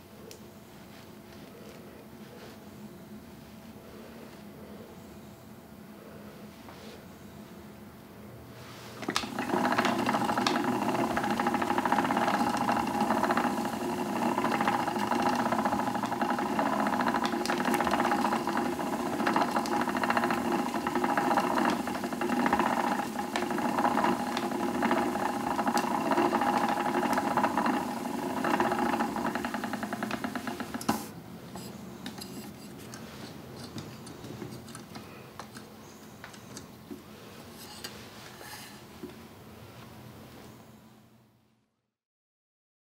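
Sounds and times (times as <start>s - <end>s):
spinning wheel whirring and ticking: 9.0s - 31.1s
spinning wheel click: 9.1s - 31.1s.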